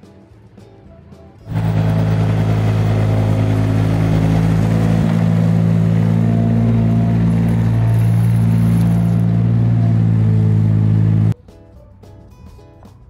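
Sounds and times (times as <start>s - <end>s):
tractor engine running: 1.5s - 11.4s.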